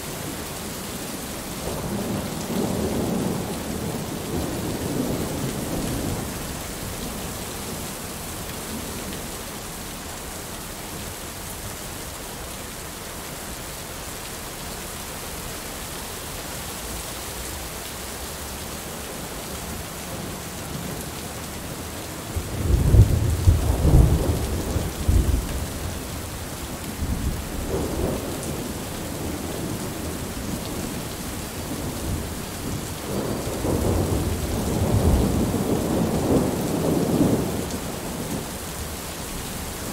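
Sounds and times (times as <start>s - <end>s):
heavy rain: 0.0s - 39.9s
thunder rumbling: 22.3s - 31.0s, 31.6s - 38.4s.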